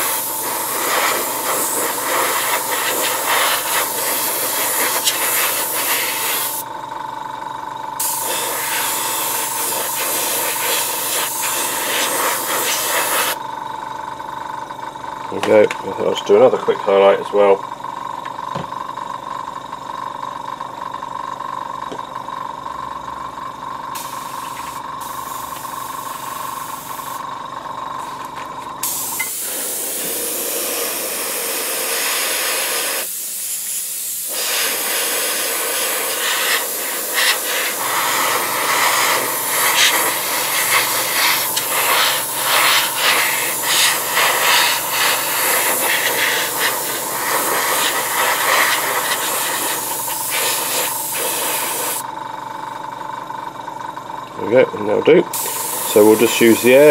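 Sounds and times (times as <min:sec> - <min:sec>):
airbrush hissing: 0:00.0 - 0:06.7, 0:08.0 - 0:13.4, 0:24.0 - 0:27.2, 0:28.8 - 0:52.0, 0:55.4 - 0:56.9
airbrush compressor humming: 0:00.0 - 0:14.9, 0:23.9 - 0:52.8, 0:55.3 - 0:56.9.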